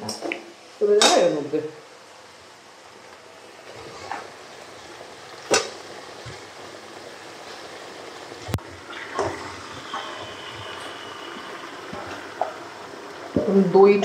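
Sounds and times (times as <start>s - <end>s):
chicken sizzling in pan: 2.9s - 14.0s.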